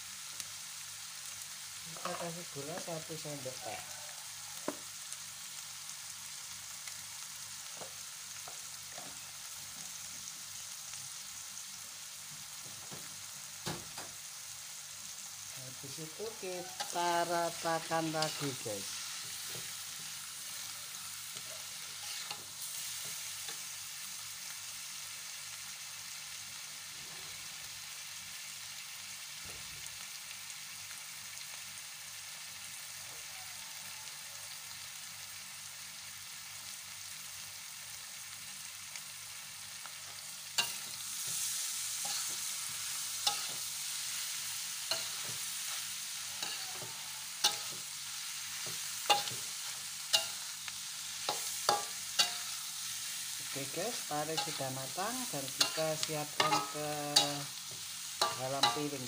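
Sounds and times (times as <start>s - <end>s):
stir-fry sizzling in wok: 0.0s - 59.0s
metal spatula scraping wok: 16.0s - 23.7s, 40.6s - 59.0s.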